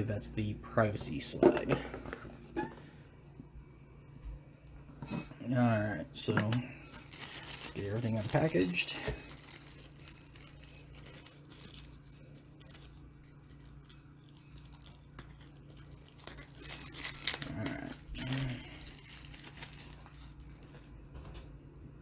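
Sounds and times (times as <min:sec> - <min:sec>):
plastic packaging crinkling: 0:05.5 - 0:21.0.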